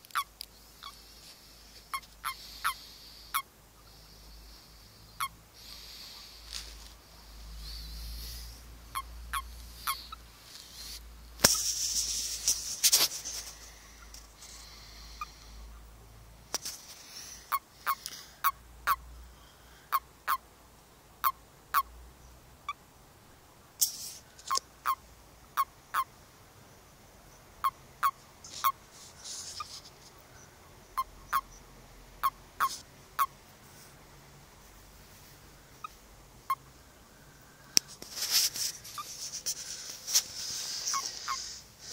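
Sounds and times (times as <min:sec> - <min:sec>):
toads croaking chirps: 0:00.0 - 0:12.6, 0:13.4 - 0:15.9, 0:16.6 - 0:19.2, 0:19.8 - 0:20.5, 0:21.2 - 0:22.0, 0:22.6 - 0:22.8, 0:23.8 - 0:28.8, 0:29.4 - 0:33.4, 0:35.6 - 0:37.8, 0:40.5 - 0:41.9.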